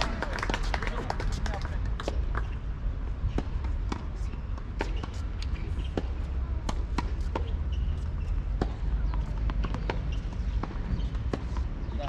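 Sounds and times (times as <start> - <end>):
tennis balls struck and bouncing: 0.0 - 12.0.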